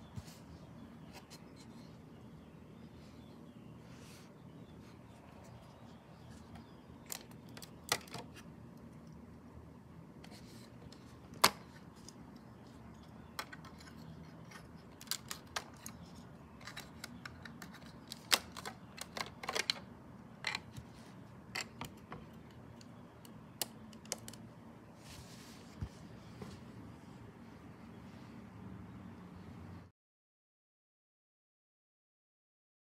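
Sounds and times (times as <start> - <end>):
plastic pieces clicking: 14.5 - 19.9, 21.6 - 24.5
short rustle: 25.0 - 26.8.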